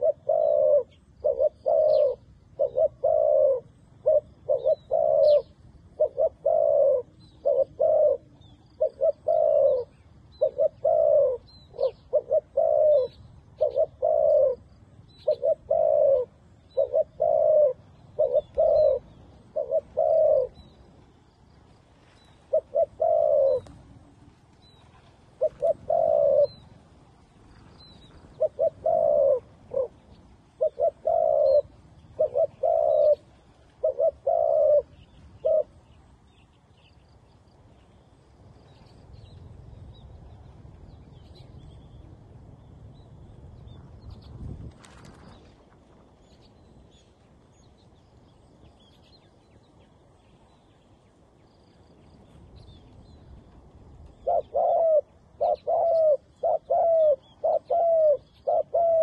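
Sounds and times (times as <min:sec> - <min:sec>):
doves cooing: 0:00.0 - 0:21.2, 0:22.3 - 0:36.2, 0:53.5 - 0:59.0
small birds chirping: 0:00.0 - 0:23.8, 0:27.4 - 0:59.0.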